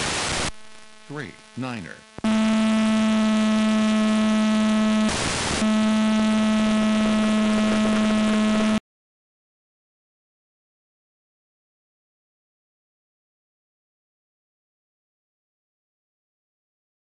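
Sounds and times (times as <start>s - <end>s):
radio static burst: 0.0s - 8.8s
steady electrical buzz: 0.0s - 8.8s.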